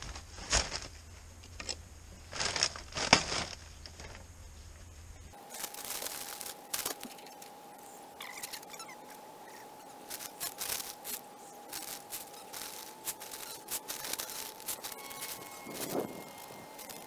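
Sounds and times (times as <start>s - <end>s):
plastic bag crinkling: 2.3s - 4.2s, 5.4s - 7.4s, 10.1s - 17.0s.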